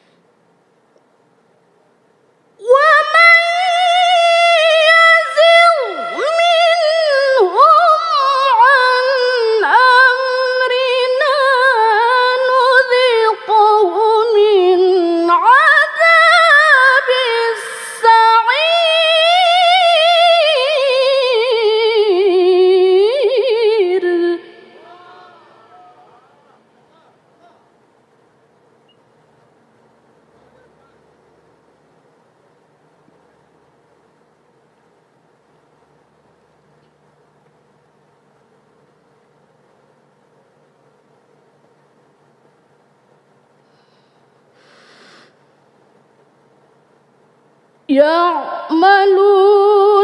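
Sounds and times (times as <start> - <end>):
woman reciting melodically: 2.6 - 27.7, 47.9 - 50.0.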